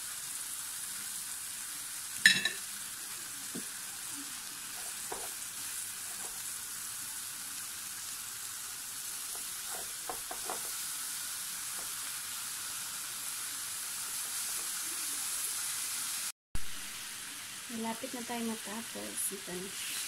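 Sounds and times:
ribs sizzling on a grill plate: 0:00.0 - 0:20.0.

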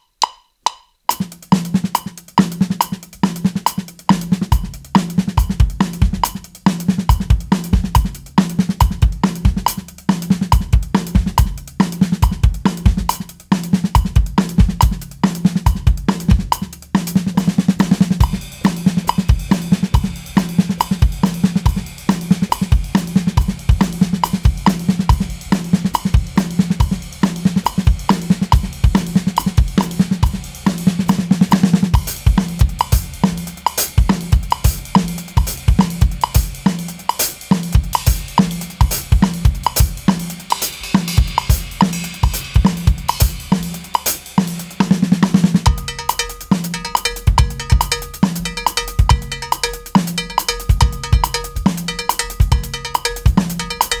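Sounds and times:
drum kit groove: 0:00.0 - 0:54.0
cowbell ringing: 0:45.7 - 0:54.0.

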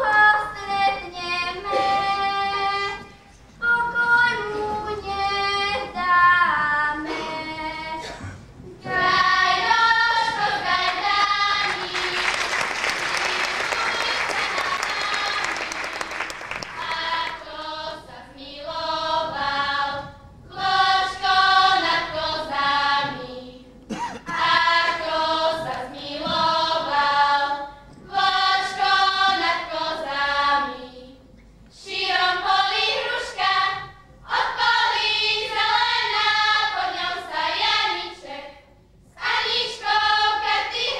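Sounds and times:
girls' choir singing: 0:00.0 - 0:40.9
applause: 0:11.7 - 0:17.4.

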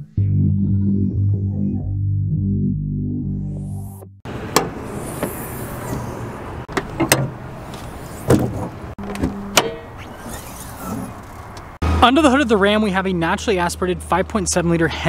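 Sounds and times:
outdoor background noise: 0:04.3 - 0:15.0
truck door latch clicks: 0:06.7 - 0:07.4.

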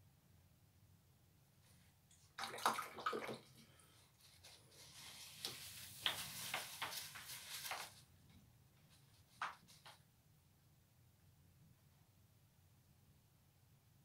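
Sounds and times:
paper tissue rustling: 0:03.8 - 0:08.2
brush clicks and taps: 0:05.4 - 0:07.9, 0:09.3 - 0:10.0.

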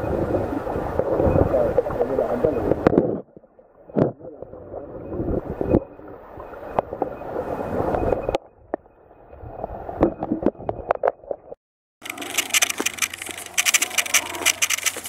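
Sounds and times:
muffled underwater stream: 0:00.0 - 0:11.6
sharp clicks and knocks: 0:12.0 - 0:15.0.

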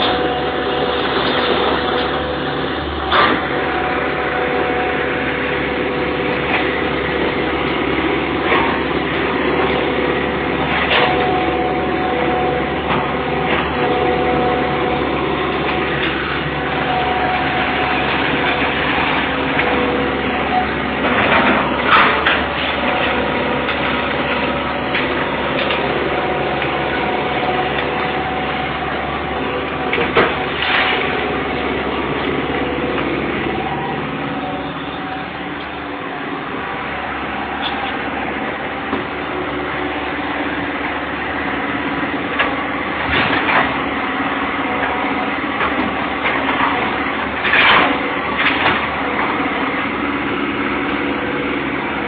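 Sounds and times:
excavator diesel engine: 0:00.0 - 0:52.0.

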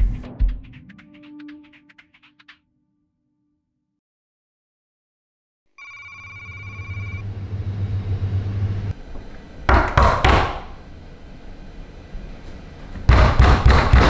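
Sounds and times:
electronic ringing tone: 0:05.8 - 0:07.2
low hum: 0:06.2 - 0:09.7
loud thuds on a door: 0:09.7 - 0:10.7, 0:13.1 - 0:14.0.

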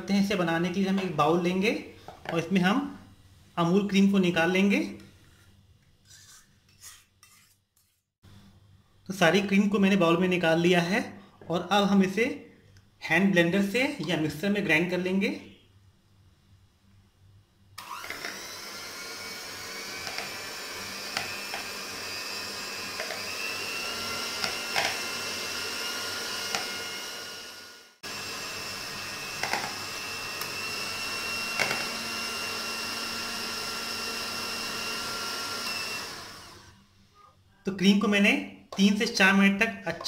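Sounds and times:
electric hand mixer whining: 0:17.8 - 0:36.8.

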